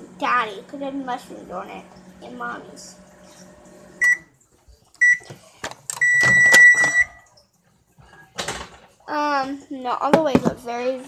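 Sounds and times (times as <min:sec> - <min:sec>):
microwave oven hum: 0:00.0 - 0:04.4, 0:06.0 - 0:07.3
microwave beeps: 0:04.0 - 0:04.4, 0:05.0 - 0:05.3, 0:06.0 - 0:07.3.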